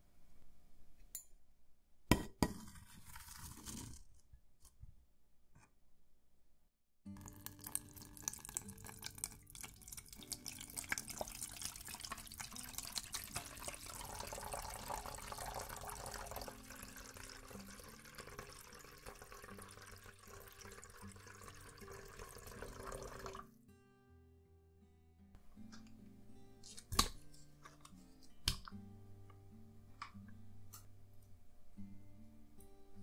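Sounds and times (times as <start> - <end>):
water pouring into metal pan: 7.2 - 23.5.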